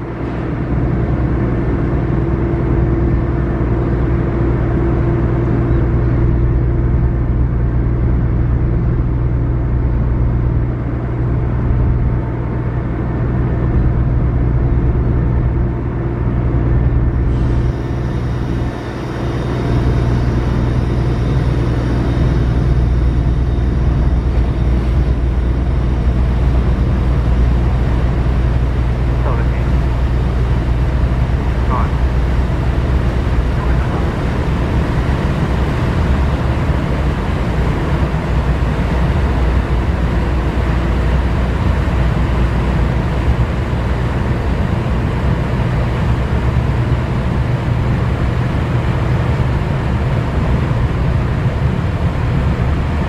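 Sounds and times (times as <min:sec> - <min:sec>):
ship diesel engines rumbling: 0:00.0 - 0:53.0.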